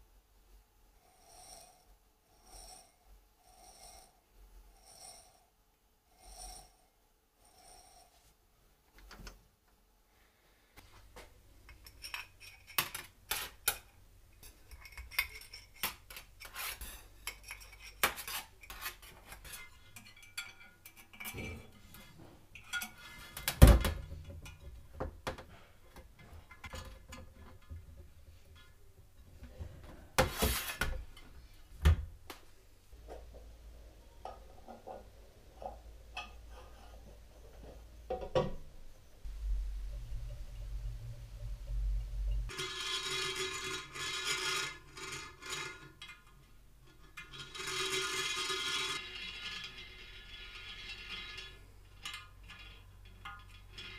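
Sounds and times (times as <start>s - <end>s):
faint low hum: 31.0s - 42.6s.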